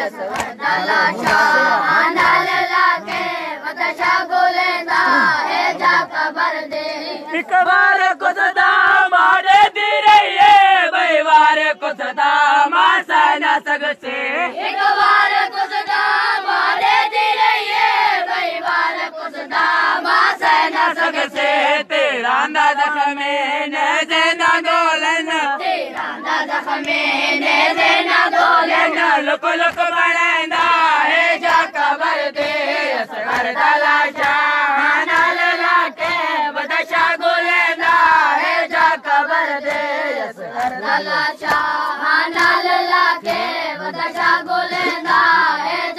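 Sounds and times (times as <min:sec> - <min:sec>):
hands slapping on chests: 0:00.0 - 0:06.0, 0:25.9 - 0:27.1, 0:27.7 - 0:45.8
boys chanting a lament: 0:00.0 - 0:45.9.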